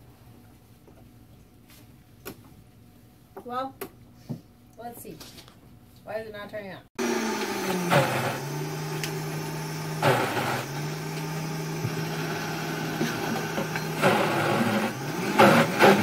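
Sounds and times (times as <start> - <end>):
blender motor humming: 7.0 - 16.0.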